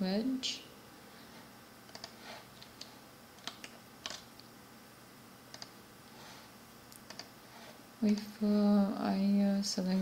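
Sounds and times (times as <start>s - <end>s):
faint room hiss: 0.0s - 10.0s
mouse and keyboard clicks: 1.9s - 4.3s, 5.5s - 5.8s, 7.0s - 7.3s.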